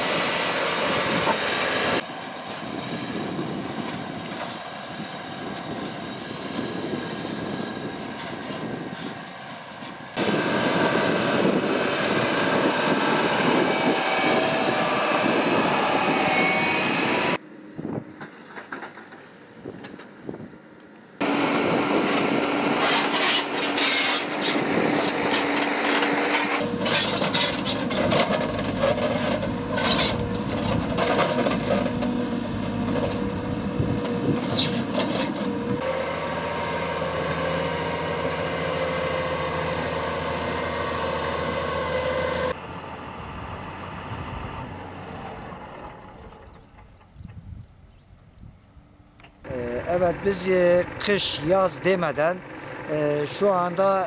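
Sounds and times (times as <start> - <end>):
heavy machinery engines under load: 0.0 - 47.6, 49.2 - 54.0
rock and earth scraping: 21.2 - 35.9.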